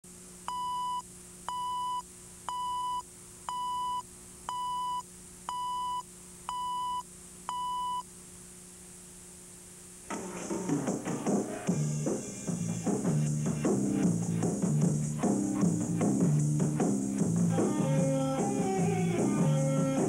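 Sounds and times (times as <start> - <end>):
music: 10.1 - 20.0.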